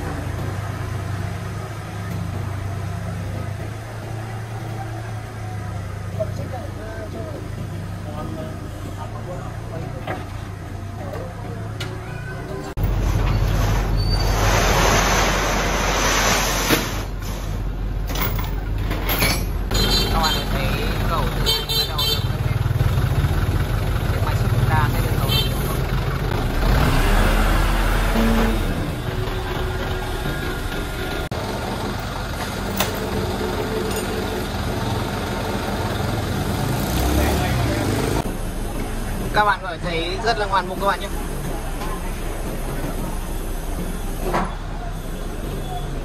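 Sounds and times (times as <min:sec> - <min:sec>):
heavy machinery engine running: 0:22.3 - 0:46.0.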